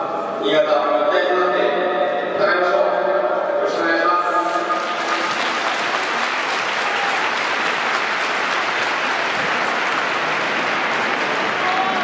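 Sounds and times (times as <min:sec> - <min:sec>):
stadium crowd applause: 0:04.7 - 0:12.0.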